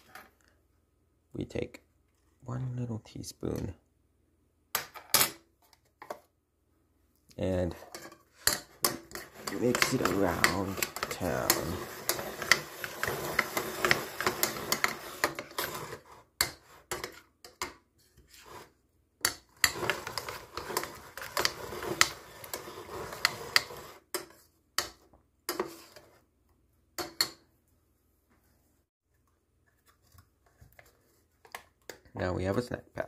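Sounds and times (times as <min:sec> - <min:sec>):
metal spoon stirring in ceramic bowl: 0:07.7 - 0:17.8, 0:18.4 - 0:26.2.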